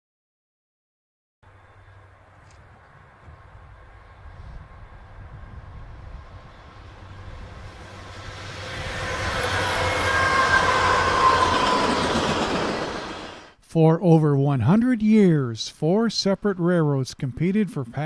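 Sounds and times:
freight train passing: 0:01.5 - 0:13.6.

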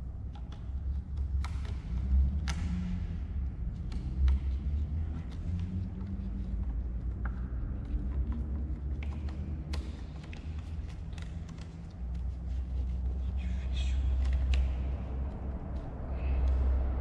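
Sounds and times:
low background rumble: 0:00.0 - 0:17.0
latex glove crinkling and clicking: 0:07.9 - 0:13.3.

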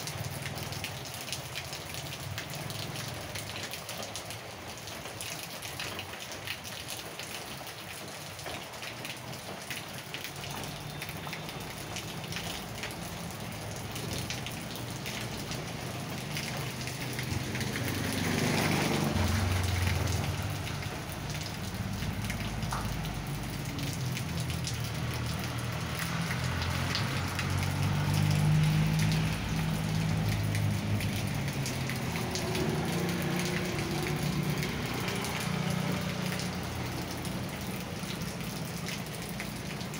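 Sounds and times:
steady rain on wet street: 0:00.0 - 0:39.9
motorcycle engine passing: 0:17.0 - 0:20.7.

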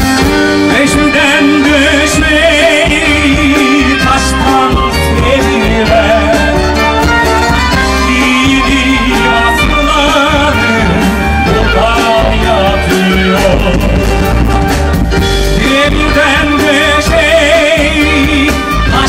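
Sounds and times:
instrumental accompaniment: 0:00.0 - 0:19.0
steady bass line: 0:00.0 - 0:19.0
violin melody with vibrato: 0:00.0 - 0:19.0.

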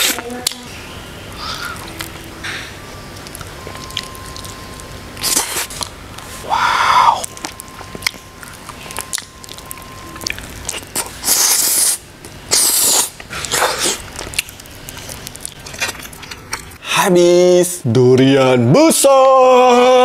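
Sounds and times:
wet chewing and smacking: 0:01.7 - 0:06.4, 0:07.1 - 0:16.8
noisy slurps: 0:05.2 - 0:07.5, 0:08.5 - 0:14.1.

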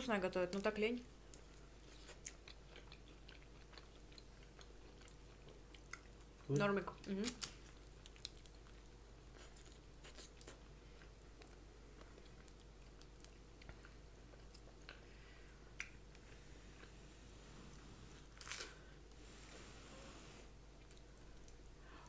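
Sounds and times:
chewing and biting food: 0:01.4 - 0:06.6, 0:07.4 - 0:15.1.

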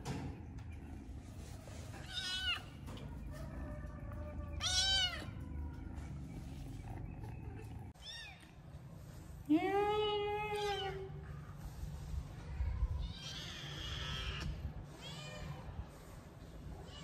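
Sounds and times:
kittens meowing: 0:02.0 - 0:06.0.

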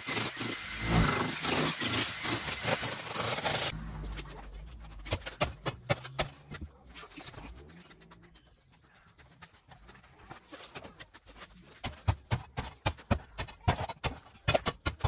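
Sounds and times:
demolition hammer chiselling concrete: 0:00.0 - 0:03.7
low hum: 0:00.6 - 0:01.4.

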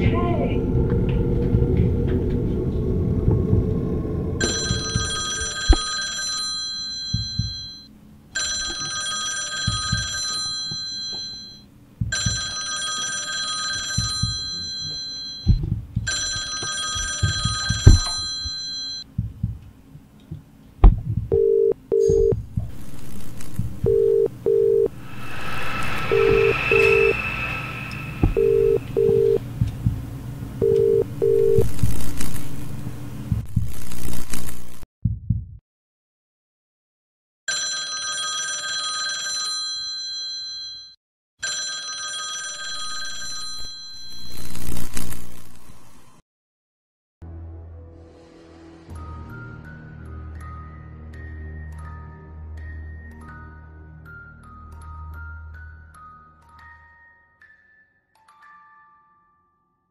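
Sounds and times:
low rumble: 0:00.0 - 0:05.1, 0:24.9 - 0:33.4
telephone ringing: 0:04.4 - 0:19.0, 0:23.9 - 0:24.9, 0:28.3 - 0:29.4, 0:30.6 - 0:31.7, 0:37.5 - 0:44.4
low paired phone line beeps: 0:21.3 - 0:22.4, 0:23.8 - 0:24.9, 0:25.5 - 0:29.4, 0:30.6 - 0:31.7
hiss: 0:25.0 - 0:28.3.

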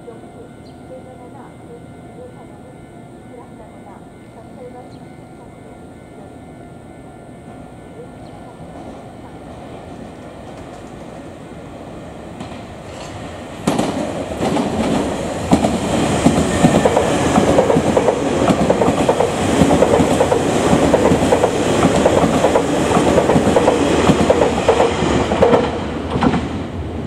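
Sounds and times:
train wheels clacking over rail joints: 0:12.4 - 0:26.5.

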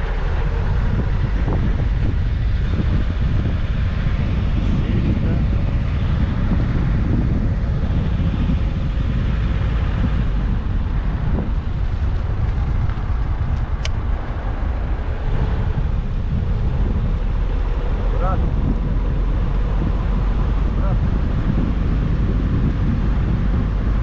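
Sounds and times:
car engine and tyre noise: 0:00.0 - 0:24.0
wind buffeting microphone: 0:00.0 - 0:24.0
sharp click: 0:13.6 - 0:14.0.

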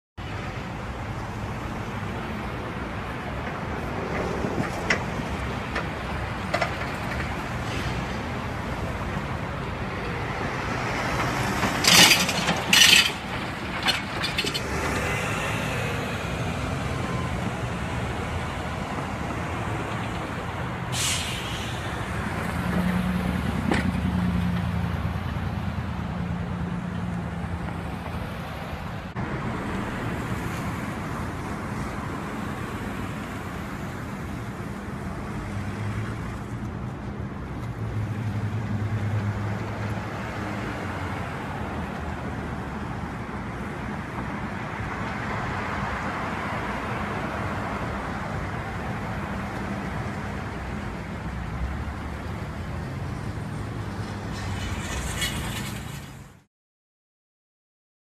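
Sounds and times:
cars passing: 0:00.2 - 0:56.5
sharp hisses: 0:20.9 - 0:22.0.

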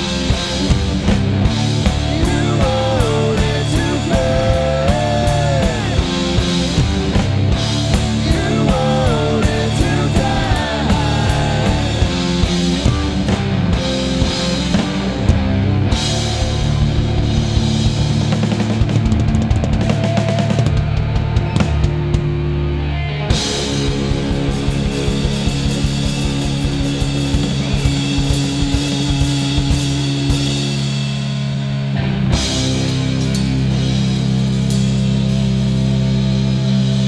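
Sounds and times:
rock band playing live: 0:00.0 - 0:37.0
sliding guitar lead melody: 0:00.0 - 0:37.0.

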